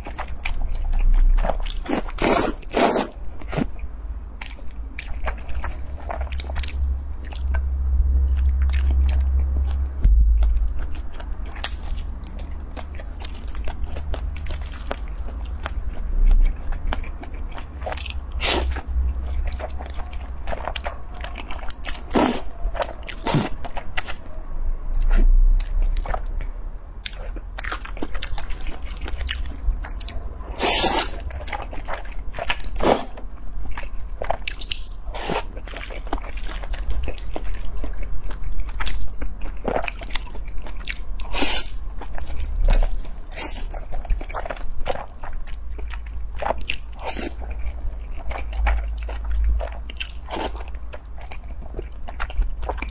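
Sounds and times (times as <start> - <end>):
noodles slurped and chewed: 0.0 - 3.7, 10.8 - 24.2, 25.0 - 52.9
steady low hum: 0.0 - 52.9.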